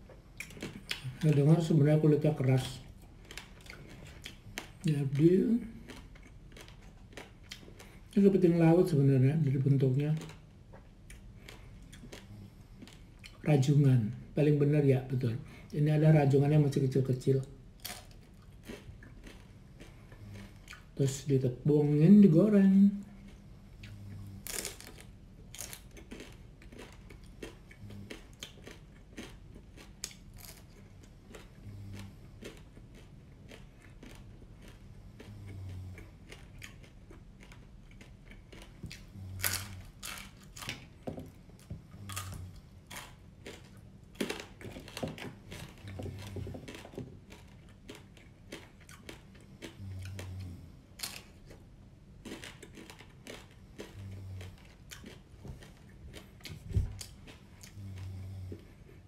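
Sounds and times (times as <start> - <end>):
crunching of fried crab shells: 0.3 - 8.6, 11.1 - 13.4, 17.8 - 21.0, 24.4 - 56.4.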